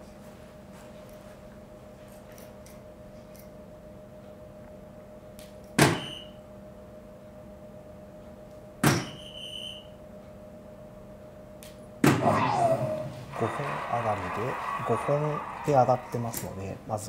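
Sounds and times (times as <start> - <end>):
darts hitting electronic dartboard: 5.7 - 6.3, 8.8 - 9.3, 12.0 - 13.0.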